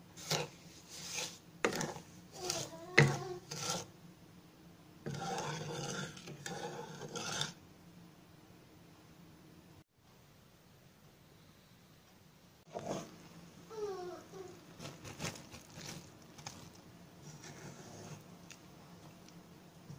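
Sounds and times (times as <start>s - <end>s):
wooden spatula scraping a pan: 0.1s - 3.9s, 5.0s - 7.6s, 12.7s - 13.2s, 14.7s - 18.4s.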